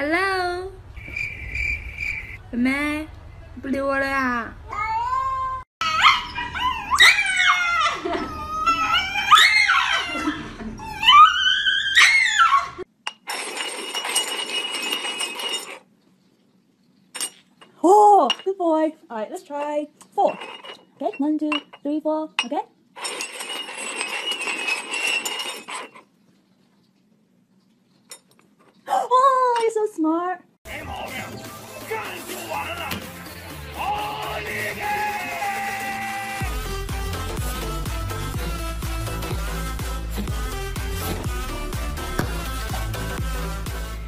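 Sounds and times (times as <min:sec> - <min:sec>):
dog yelping and howling: 0:05.8 - 0:12.9
metal cups clattering on table: 0:13.1 - 0:15.8, 0:17.2 - 0:18.6, 0:20.2 - 0:26.0.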